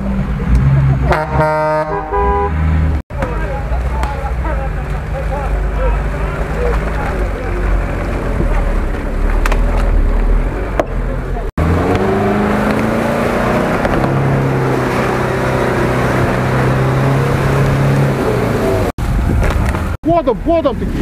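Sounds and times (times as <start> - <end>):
tyres churning mud: 3.1 - 20.0
car engine revving high: 11.6 - 19.0.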